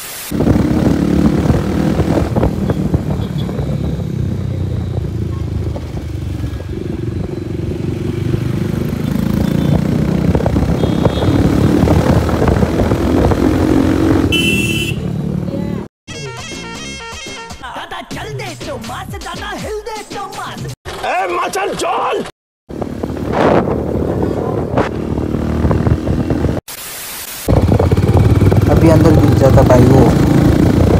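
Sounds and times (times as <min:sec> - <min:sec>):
road traffic: 0:00.0 - 0:15.9, 0:22.7 - 0:30.9
motorcycle engine running: 0:00.3 - 0:15.9, 0:22.7 - 0:26.6, 0:27.5 - 0:30.9.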